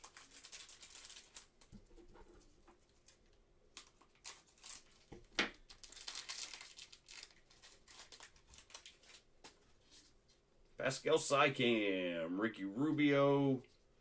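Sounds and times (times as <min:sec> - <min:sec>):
trading cards rustling: 0:00.0 - 0:01.7, 0:03.8 - 0:10.1.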